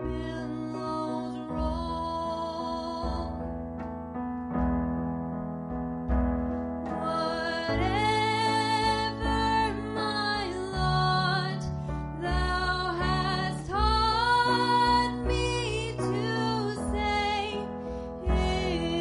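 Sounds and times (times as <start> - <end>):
woman singing: 0.0 - 3.5, 6.9 - 19.0.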